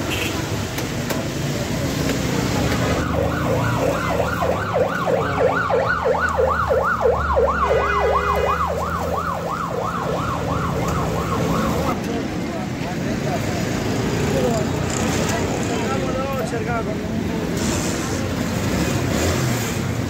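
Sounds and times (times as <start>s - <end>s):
siren sweeping up and down: 3.0s - 12.0s.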